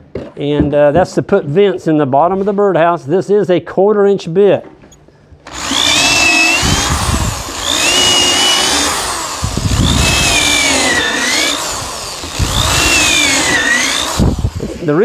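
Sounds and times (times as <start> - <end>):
electric drill boring into wood: 5.4 - 14.9.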